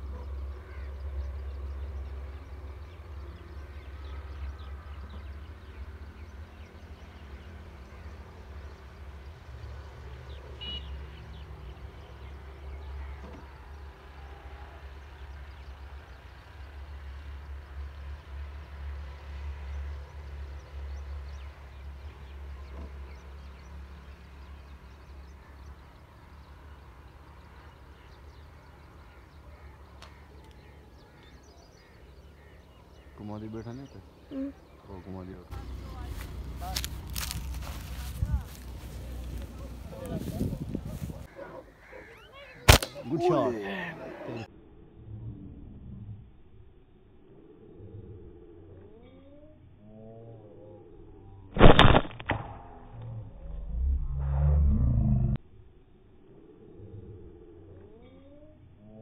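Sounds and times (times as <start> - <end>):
faint bird calls: 0.0 - 16.4, 20.7 - 44.5
wind rumble on microphone: 36.3 - 41.3.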